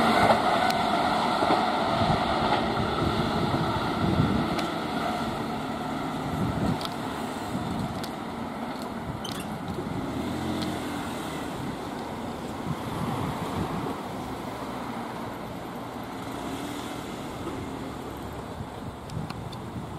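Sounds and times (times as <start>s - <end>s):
train motor hum: 0.0s - 10.7s
train wheels rumbling on rail: 0.0s - 19.9s.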